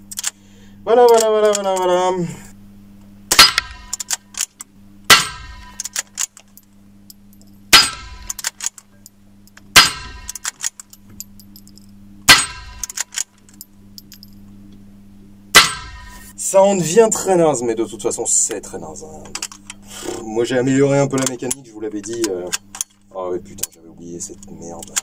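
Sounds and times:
rifle shots: 0:03.3 - 0:04.1, 0:05.1 - 0:06.0, 0:09.8 - 0:10.6
bullet clanging on steel plate: 0:03.3 - 0:04.5, 0:05.1 - 0:06.6, 0:07.4 - 0:14.4, 0:15.6 - 0:16.2.

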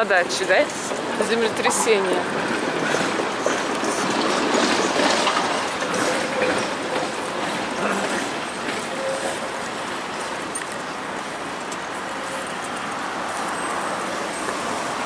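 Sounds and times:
city street traffic: 0:00.0 - 0:15.0.

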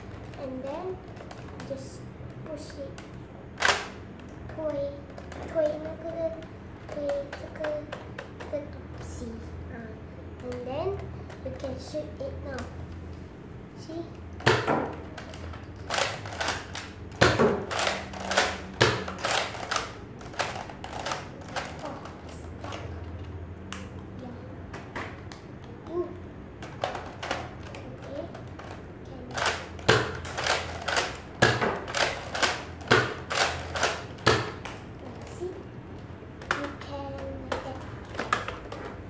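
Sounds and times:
dart blaster plastic clacks: 0:02.9 - 0:04.0, 0:14.4 - 0:24.0, 0:26.6 - 0:35.4, 0:36.4 - 0:39.0.

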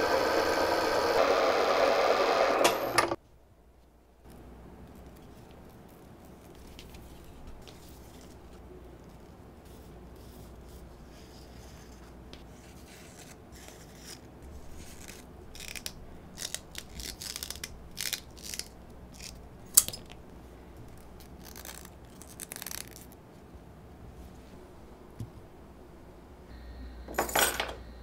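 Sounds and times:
leather lace rubbing through fingers: 0:20.9 - 0:23.2.

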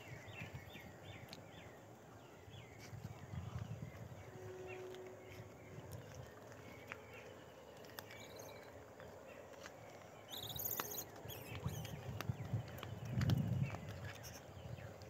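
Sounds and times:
clicks and rustles on dry ground: 0:00.0 - 0:15.0
high bird chirp: 0:10.3 - 0:12.1.

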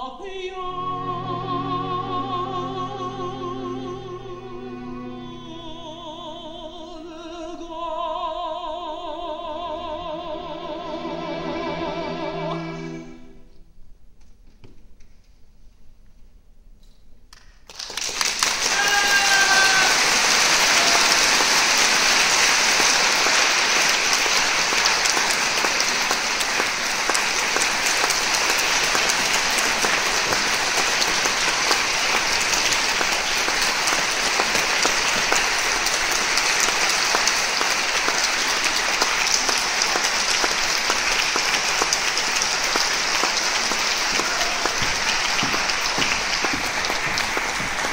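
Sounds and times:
audience applauding: 0:17.4 - 0:47.9.

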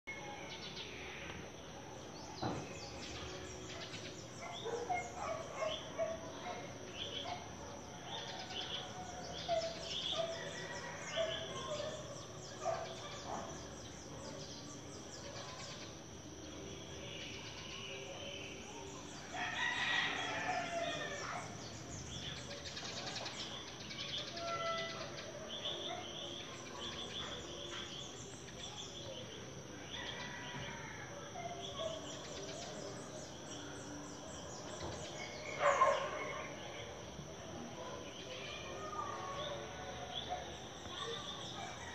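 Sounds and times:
rooster crowing: 0:19.3 - 0:21.4, 0:30.0 - 0:31.1.

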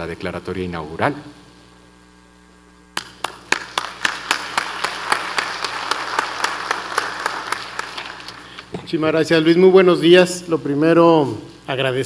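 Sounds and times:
audience applauding: 0:03.0 - 0:08.7
single sharp claps: 0:03.0 - 0:08.7.

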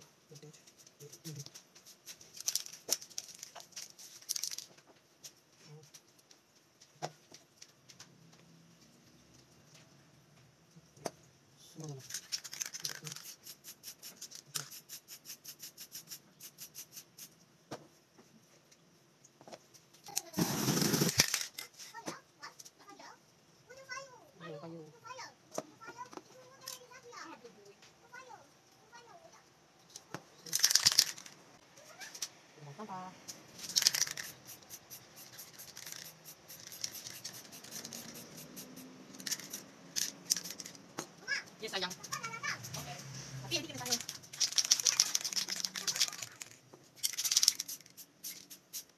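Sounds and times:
spray paint can pulses: 0:12.5 - 0:17.3, 0:20.2 - 0:21.6, 0:30.5 - 0:31.3, 0:33.6 - 0:40.8, 0:43.8 - 0:48.9.

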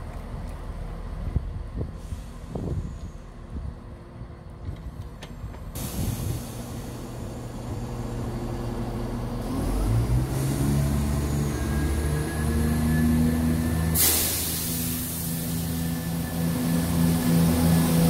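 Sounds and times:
train diesel engine: 0:00.0 - 0:18.0
loud hiss: 0:13.9 - 0:17.6.

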